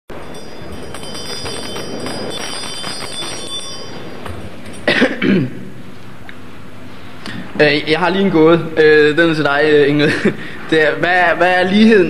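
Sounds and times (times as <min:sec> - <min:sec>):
man's voice: 0:07.6 - 0:12.0.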